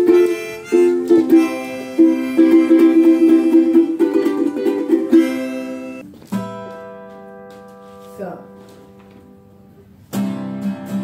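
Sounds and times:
harmonica long notes: 0.0s - 6.0s
ukulele strumming: 0.0s - 11.0s.

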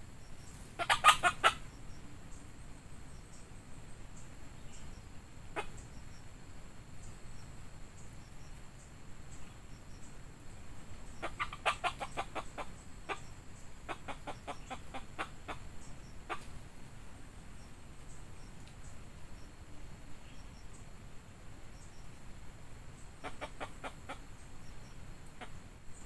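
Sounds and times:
rooster clucking: 0.8s - 1.7s, 11.1s - 13.3s, 13.9s - 15.7s, 16.3s - 16.6s, 23.2s - 24.3s, 25.3s - 25.6s.

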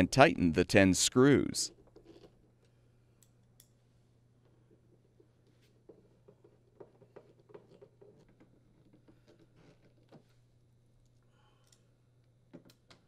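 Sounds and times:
faint steady hum: 7.9s - 13.0s.

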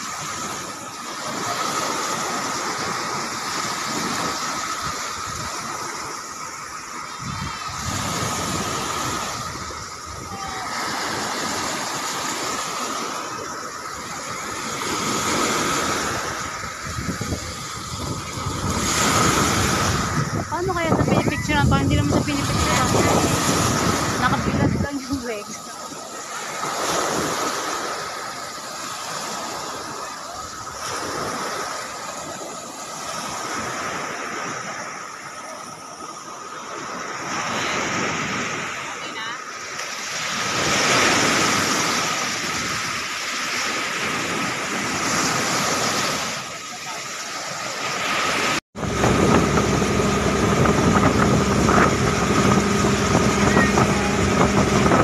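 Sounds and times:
small waves breaking on sand: 0.0s - 55.0s
wind noise on microphone: 7.1s - 13.0s, 14.0s - 25.5s, 48.1s - 55.0s.

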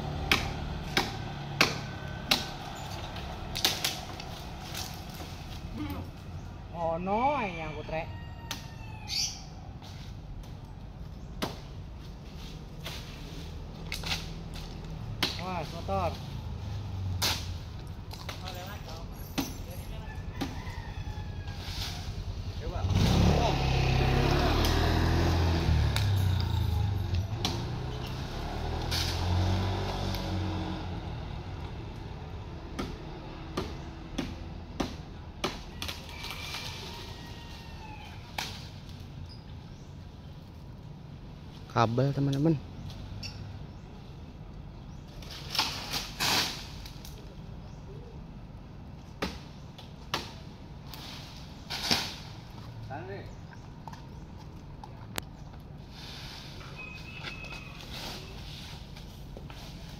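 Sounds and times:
engine running: 0.0s - 6.4s.

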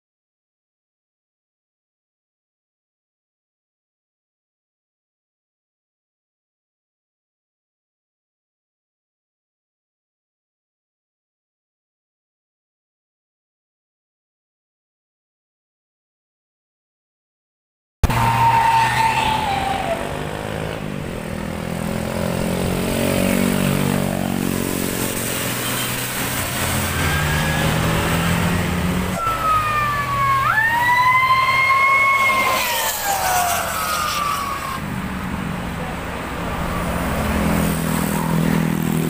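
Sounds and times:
diesel bus engines passing: 18.0s - 39.0s
two-tone siren-like bus horn: 25.4s - 34.8s.

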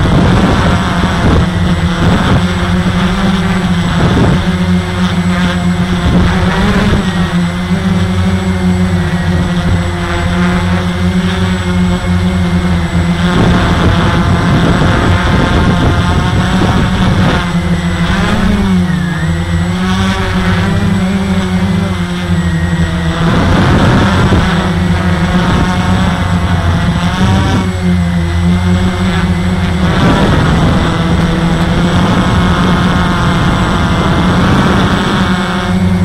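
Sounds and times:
drone motors whirring: 0.0s - 36.0s
rush of air noise: 0.0s - 36.0s.

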